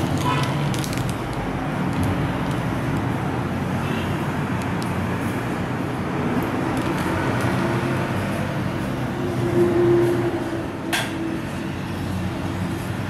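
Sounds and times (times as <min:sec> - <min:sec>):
plastic packet ticks: 0:00.0 - 0:03.1.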